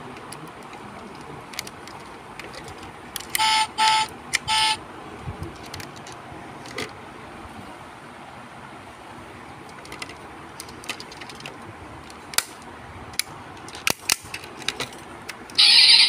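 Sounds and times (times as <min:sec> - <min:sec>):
toy car horn beeps: 0:03.4 - 0:04.8, 0:15.6 - 0:16.0.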